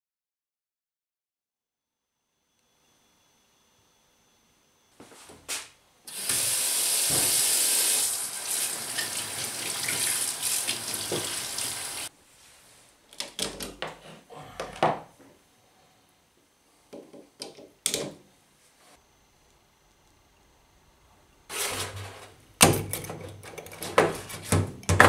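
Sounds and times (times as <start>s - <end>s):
tap running into a steel sink: 10.9s - 11.4s.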